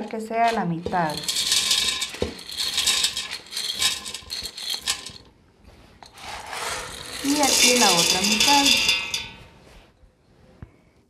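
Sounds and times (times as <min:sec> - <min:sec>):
corn kernels poured into metal pot: 0:01.0 - 0:05.2, 0:06.0 - 0:09.5.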